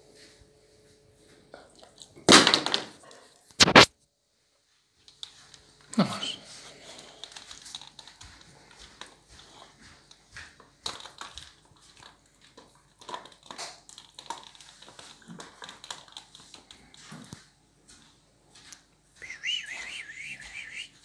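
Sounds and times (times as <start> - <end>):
dog teeth crunching on bone: 6.9 - 9.7, 10.5 - 17.3.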